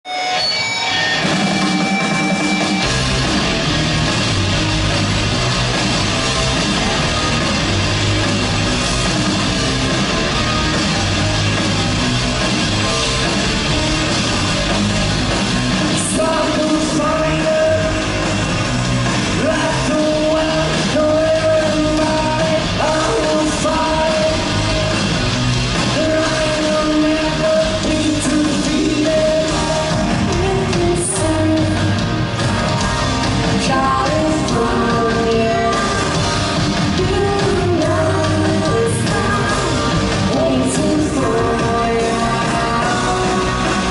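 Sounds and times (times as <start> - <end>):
rock band playing: 0.0 - 43.9
person singing: 15.8 - 18.4, 19.2 - 25.1, 25.9 - 32.2, 33.4 - 43.9.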